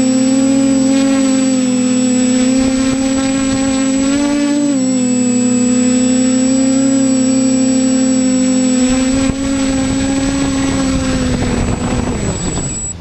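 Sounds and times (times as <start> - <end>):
quadcopter motors whining: 0.0 - 13.0.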